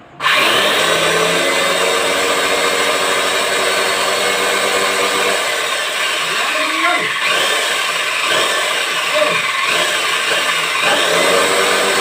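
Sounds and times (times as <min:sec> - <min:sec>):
electric chainsaw motor whine: 0:00.2 - 0:12.0.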